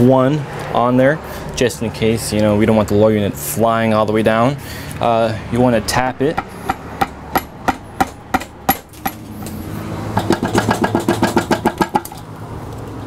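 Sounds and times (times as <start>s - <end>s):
sharp knocks on metal: 6.4s - 12.2s.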